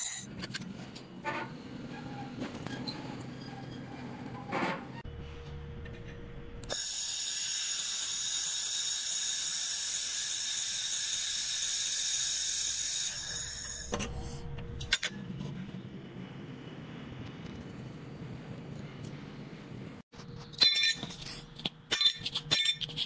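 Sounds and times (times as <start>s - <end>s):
laser welder hissing: 6.7s - 13.9s.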